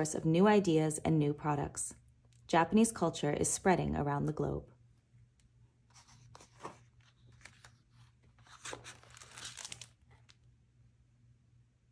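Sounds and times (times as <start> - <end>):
book pages turning: 5.9 - 10.4.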